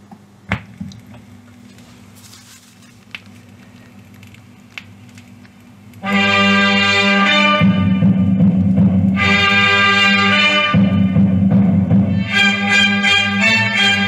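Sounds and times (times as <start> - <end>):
record crackle and clicks: 0.0 - 6.1, 8.4 - 9.2
brass-led music: 6.0 - 14.0.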